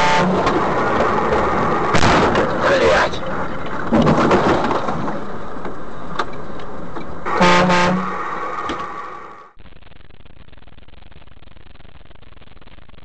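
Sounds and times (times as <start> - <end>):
vehicle horn blaring: 0.0 - 0.5, 7.3 - 8.2
road and cab noise: 0.0 - 9.6.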